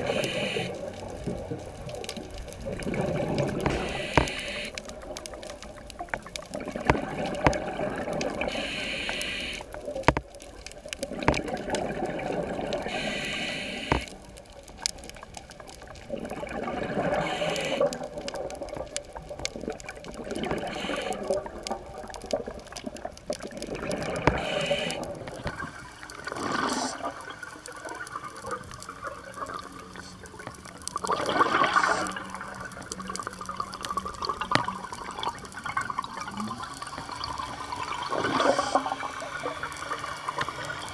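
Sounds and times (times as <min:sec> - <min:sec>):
exhaled bubbles gurgling: 0:00.0 - 0:40.9
short high hiss: 0:03.7 - 0:04.8.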